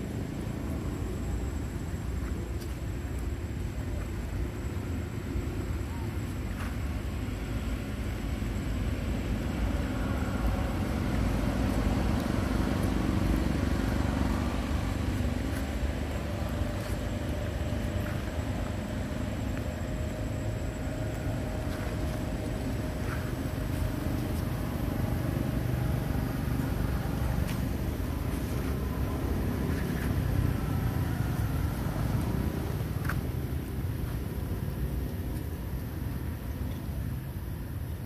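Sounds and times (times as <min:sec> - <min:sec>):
faint steady hum: 0:00.0 - 0:38.0
low engine rumble: 0:00.0 - 0:38.0.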